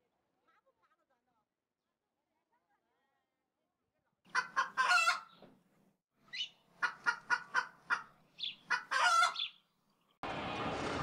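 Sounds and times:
chicken clucking: 4.3 - 5.4, 6.3 - 9.5
chicken long drawn-out call: 8.7 - 9.4.

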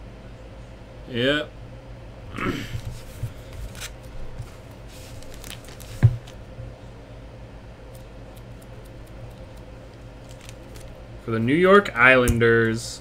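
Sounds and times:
cards being handled: 2.8 - 6.4, 7.9 - 11.0
foil wrapper crinkling: 3.6 - 6.4, 7.9 - 11.0.

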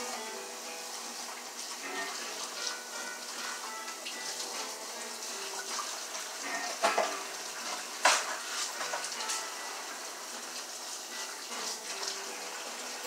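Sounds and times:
tap running into sink: 5.6 - 9.4.

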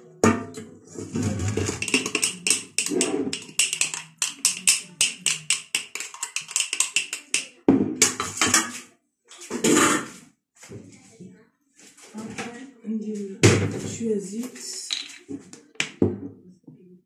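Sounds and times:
spoon clicking against glass jar: 1.8 - 7.5.

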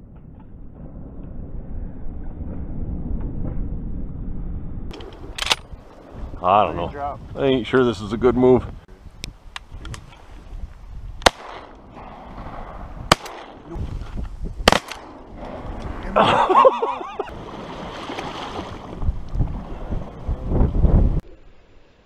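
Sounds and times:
shotgun shots: 11.2 - 13.7, 14.6 - 15.4.

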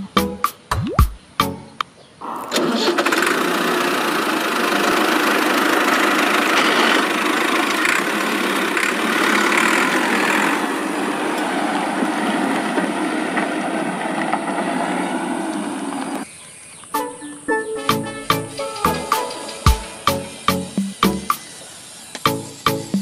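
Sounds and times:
toy tractor engine running: 2.2 - 16.3.

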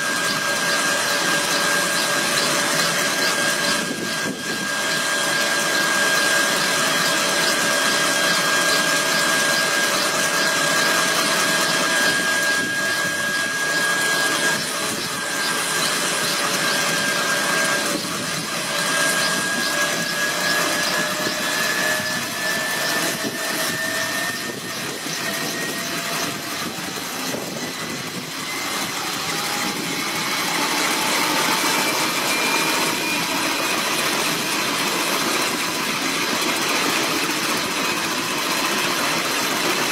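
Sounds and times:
helicopter turbine whine: 0.0 - 39.9
rotor rushing noise: 0.0 - 39.9.

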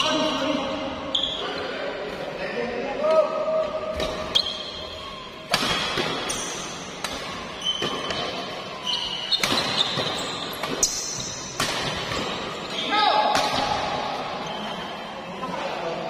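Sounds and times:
shoes squeaking on court floor: 1.0 - 1.8, 3.7 - 13.2, 14.1 - 15.7.

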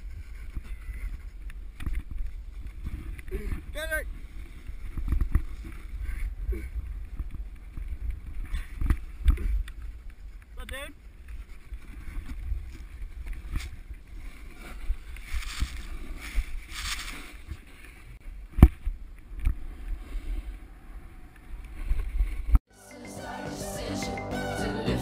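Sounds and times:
wind rumble on camera: 0.0 - 22.6
music: 22.7 - 25.0.

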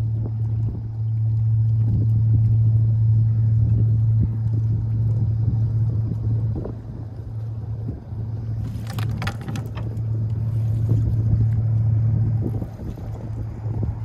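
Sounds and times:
low engine hum: 0.0 - 14.0
clicking and rattling: 8.6 - 10.0.

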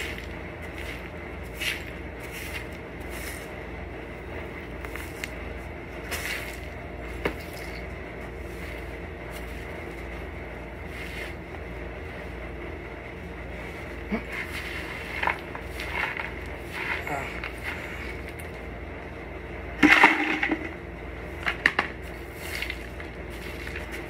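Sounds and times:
push broom sweeping rubble: 0.0 - 3.6, 6.0 - 10.1, 10.7 - 12.2, 13.6 - 18.6, 19.8 - 24.0.

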